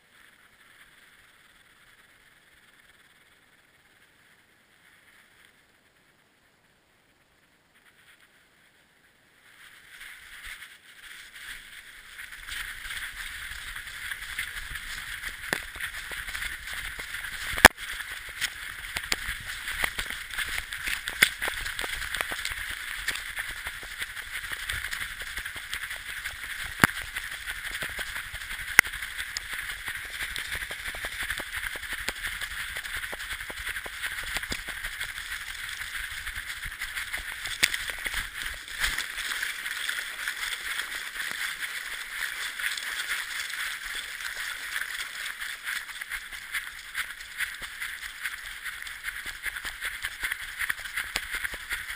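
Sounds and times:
harness and paws scuffing on snow: 9.4 - 51.9.

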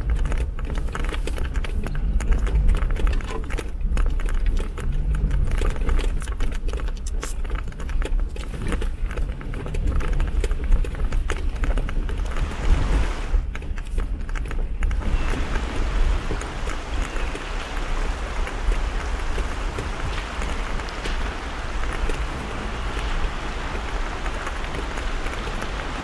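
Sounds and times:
low engine rumble: 0.0 - 26.0
steady hiss: 14.9 - 26.0.

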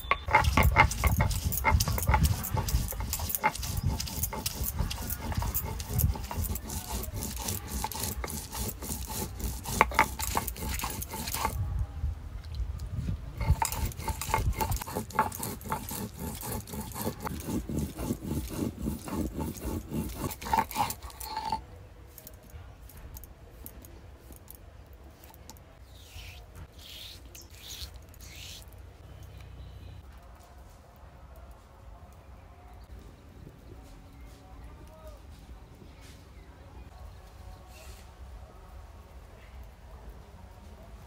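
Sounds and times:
stone roller grinding on stone slab: 0.0 - 11.6, 13.4 - 21.7
faint scraping: 0.0 - 11.7, 12.9 - 29.3.

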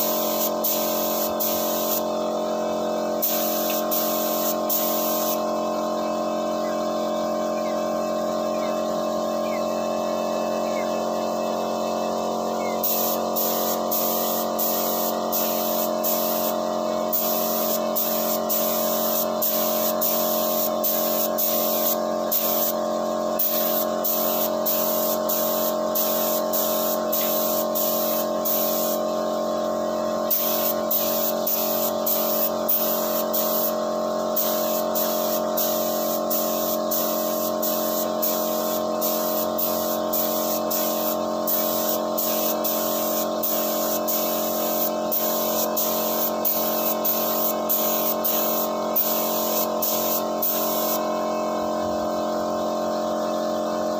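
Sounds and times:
spray gun hissing: 0.0 - 2.4, 3.2 - 5.5, 12.8 - 29.4, 30.2 - 51.2
air compressor humming: 0.0 - 53.9.

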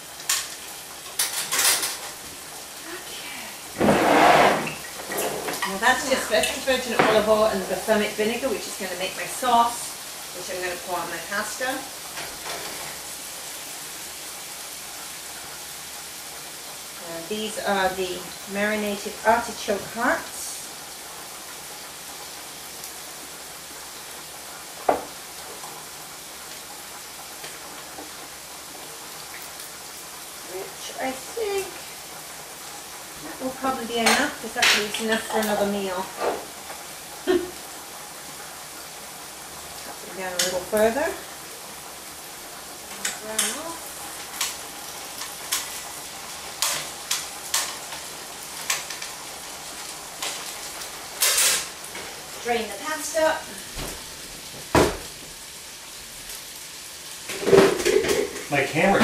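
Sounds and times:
food sizzling in a pan: 0.0 - 59.0
food scraping and rustling: 3.8 - 5.8.

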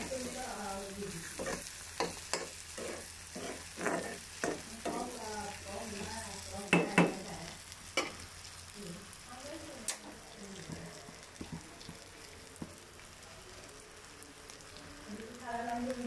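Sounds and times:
food sizzling in oil: 0.0 - 16.0
metal spatula scraping and tapping pan: 1.3 - 5.2, 8.0 - 8.2.

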